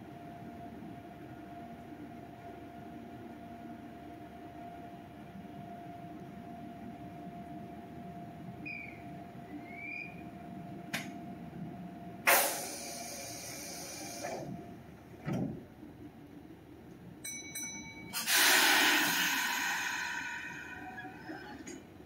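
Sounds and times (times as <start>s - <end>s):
train compressed air hiss: 12.2s - 14.5s, 18.1s - 21.0s.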